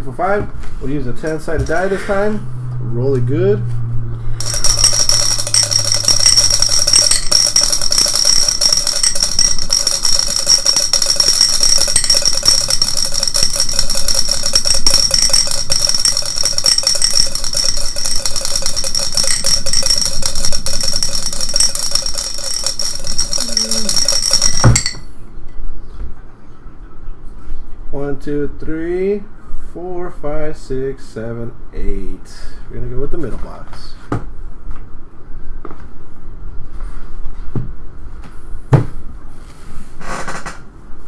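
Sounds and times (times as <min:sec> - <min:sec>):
die rattling in a cup: 0:04.4 - 0:25.0
cup ringing tone: 0:04.4 - 0:25.1.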